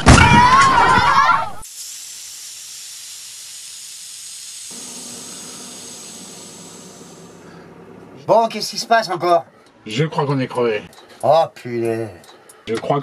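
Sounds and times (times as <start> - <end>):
air hissing out of tyre: 1.6 - 7.9.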